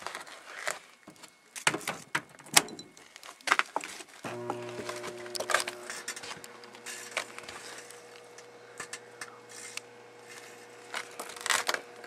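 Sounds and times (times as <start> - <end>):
microwave oven humming: 4.3 - 12.0
crackling and popping: 10.8 - 12.0.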